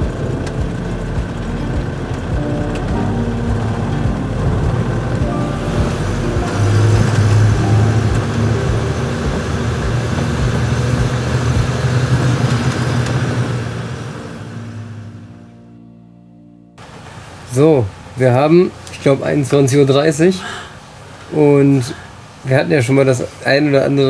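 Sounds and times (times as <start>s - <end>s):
van engine running at low speed: 0.0s - 18.2s.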